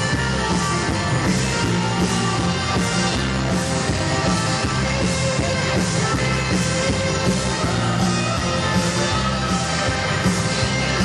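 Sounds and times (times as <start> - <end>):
upbeat dance music: 0.0 - 11.0.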